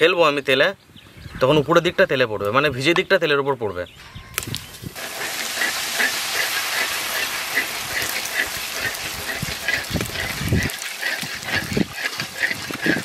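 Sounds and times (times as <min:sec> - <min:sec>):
food sizzling in hot oil: 0:04.4 - 0:13.0.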